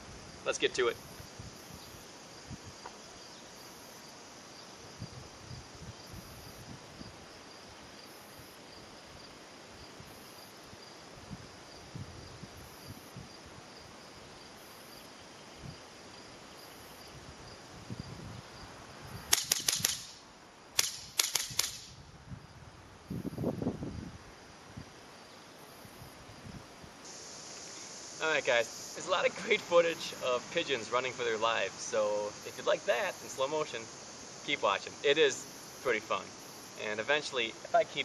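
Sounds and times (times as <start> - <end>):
faint insect chirring: 0.0 - 38.0
air rifle shots cracking: 19.3 - 20.2, 20.8 - 22.0.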